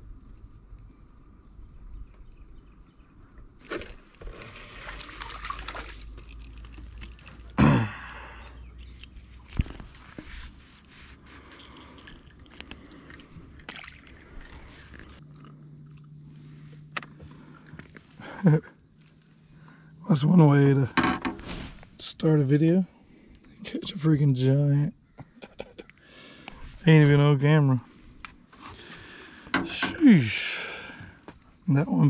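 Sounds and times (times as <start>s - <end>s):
faint steady hum: 0.0s - 32.0s
fish splashing water: 3.6s - 7.6s, 11.5s - 16.2s
rod and reel handling: 3.6s - 7.6s, 8.8s - 15.5s.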